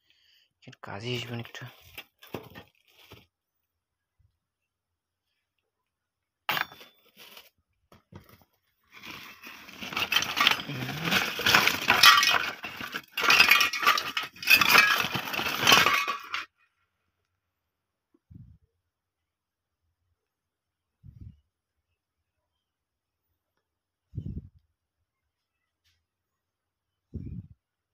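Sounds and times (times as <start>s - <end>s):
scrap clinking and rattling: 6.5s - 7.5s, 8.9s - 16.5s.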